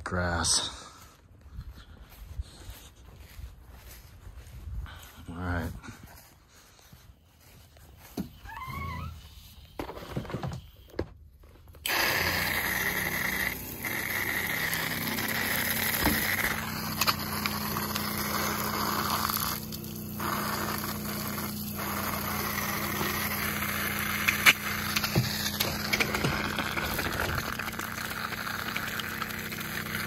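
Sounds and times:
water pump humming: 6.9s - 30.0s
water jet spraying onto grass: 11.8s - 30.0s.

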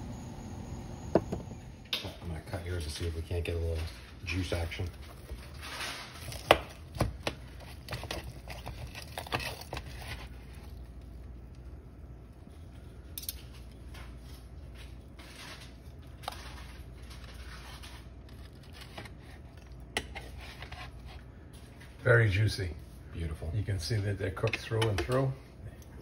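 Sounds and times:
knife cutting through ribs: 5.1s - 10.8s.

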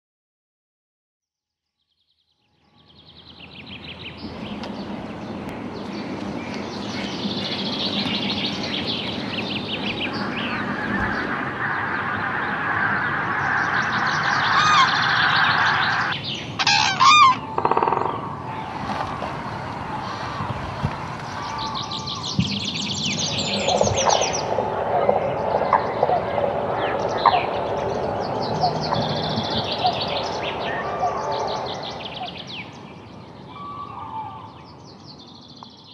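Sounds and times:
flock of waterbirds calling: 6.4s - 32.8s.

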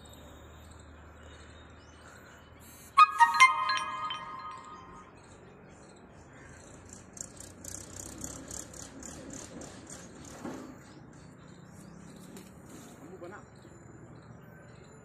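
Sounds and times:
bright chime: 3.0s - 5.2s
faint high chirps: 3.0s - 5.2s.

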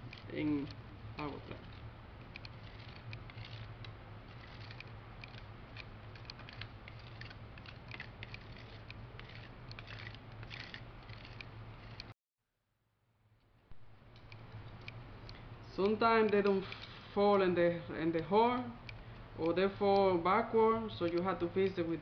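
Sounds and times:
steady low hum: 0.0s - 12.2s, 12.9s - 22.0s
plastic card scraping a plate: 2.4s - 12.1s.

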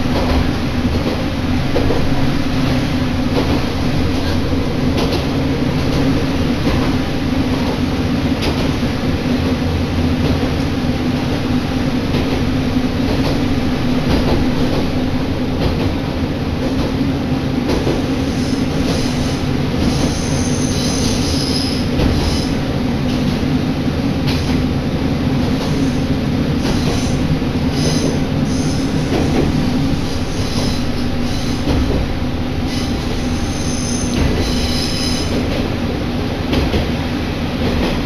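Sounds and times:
train engine and running rumble: 0.0s - 38.0s
faint high-pitched wheel squeal: 32.7s - 35.4s.

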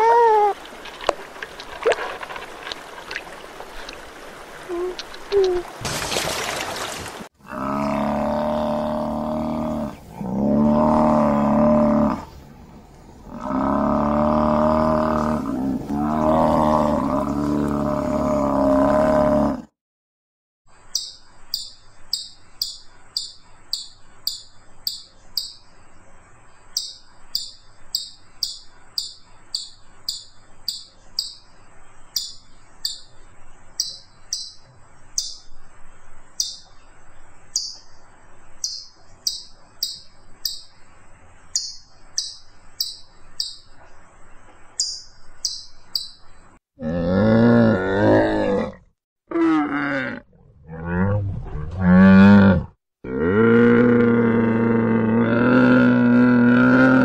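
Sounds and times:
camels groaning and bellowing: 13.3s - 19.7s, 46.8s - 57.0s
rapid high falling chirps: 36.3s - 36.7s.

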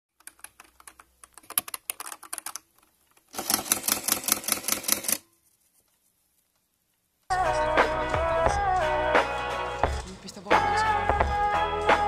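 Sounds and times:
calculator keys clicking: 0.2s - 2.7s
print mechanism rattling: 3.3s - 5.2s.

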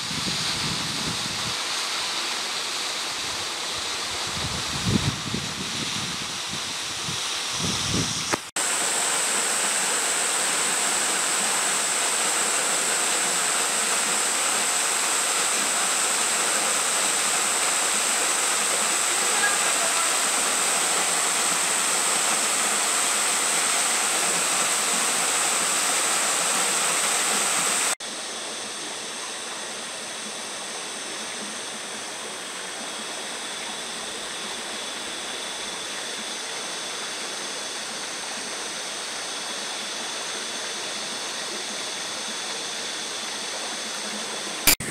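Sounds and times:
waterfall rushing and splashing: 8.4s - 28.0s.

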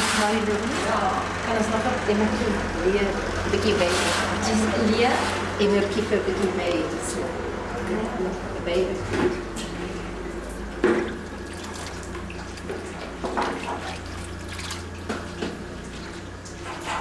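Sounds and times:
liquid splashing and dripping: 9.4s - 16.9s.

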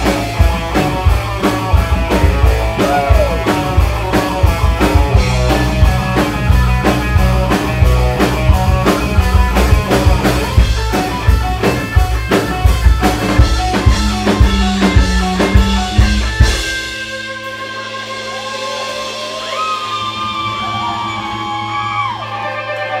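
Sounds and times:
live rock band playing: 0.0s - 23.0s.

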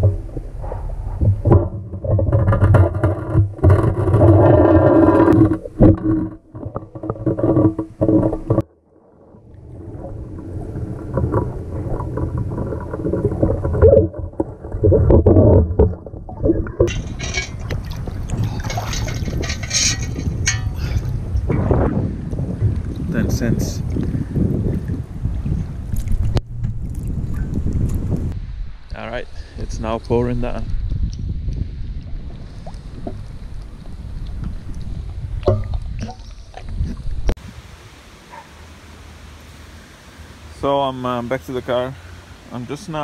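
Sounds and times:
water splashing: 0.0s - 21.9s
muffled underwater scraping: 0.0s - 28.4s.

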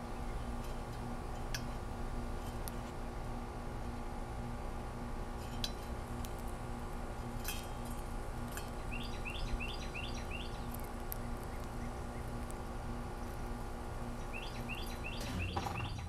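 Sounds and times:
steady hum: 0.0s - 16.0s
bird chirping: 8.8s - 12.4s, 14.2s - 16.0s
bird bill cracking seed: 10.3s - 13.6s.

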